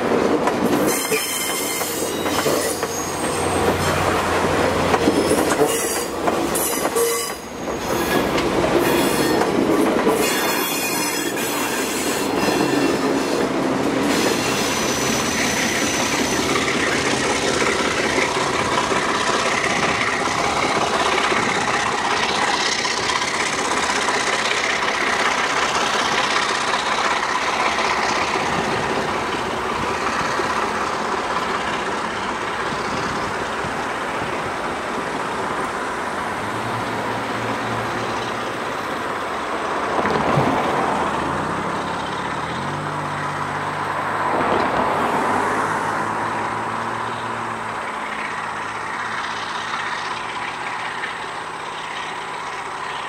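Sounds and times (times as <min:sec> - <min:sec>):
diesel locomotive running: 0:00.0 - 0:53.0.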